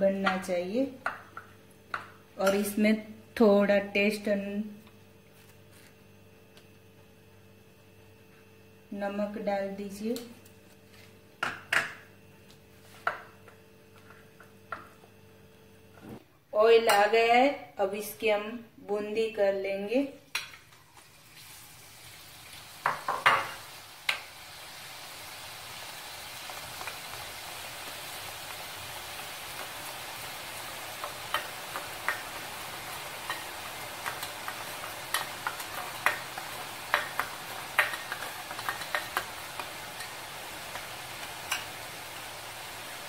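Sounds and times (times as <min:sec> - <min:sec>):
batter frying in hot oil: 0:20.3 - 0:43.0.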